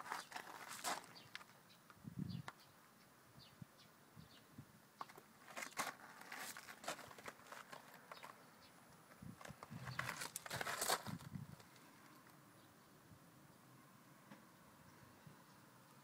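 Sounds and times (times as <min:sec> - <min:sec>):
rustling on microphone: 0:05.4 - 0:08.4, 0:09.2 - 0:11.9.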